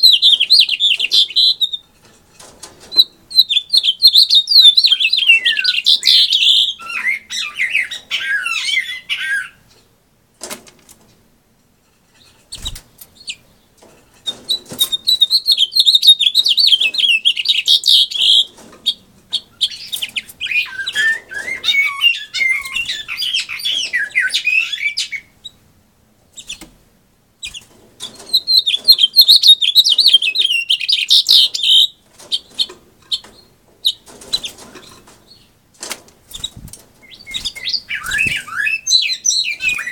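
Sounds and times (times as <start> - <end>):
finch singing warbling songs: 0.0 - 1.8, 2.9 - 9.6, 14.3 - 25.6, 27.4 - 35.5, 36.3 - 39.9.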